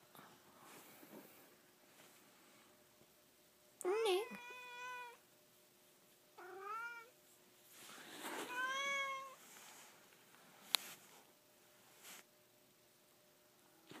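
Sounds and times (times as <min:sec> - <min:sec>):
cat meowing: 0:04.2 - 0:05.2, 0:06.4 - 0:07.1, 0:08.4 - 0:09.4.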